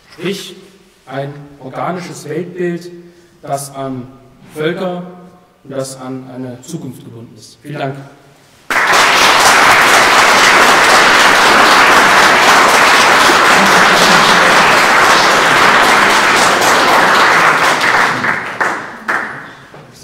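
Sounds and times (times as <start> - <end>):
audience applauding: 8.7 - 19.7.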